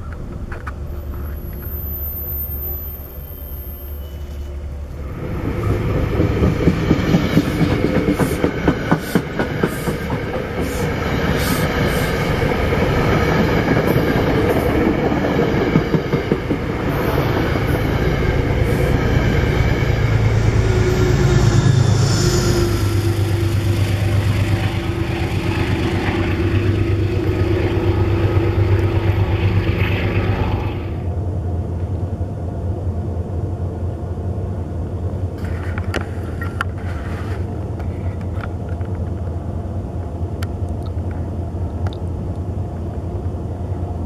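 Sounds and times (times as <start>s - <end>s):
diesel locomotive engine hum: 0.0s - 44.0s
train wheels clicking on rails: 5.1s - 30.7s.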